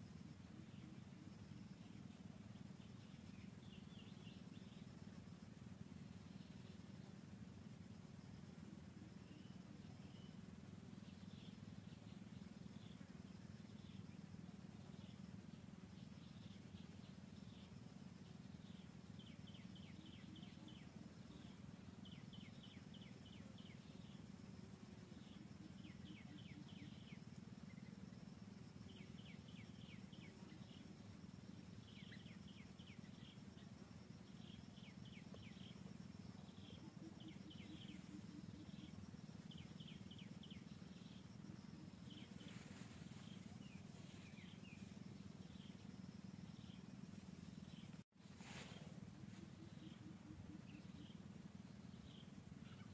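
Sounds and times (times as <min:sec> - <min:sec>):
low steady hum: 0:00.0 - 0:52.9
small bird chirping: 0:28.8 - 0:52.9.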